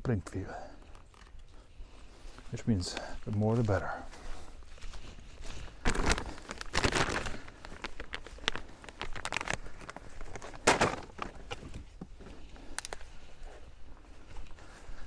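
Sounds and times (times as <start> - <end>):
footsteps through dry grass: 0.1 - 15.0
plastic bag rustling: 5.4 - 11.9.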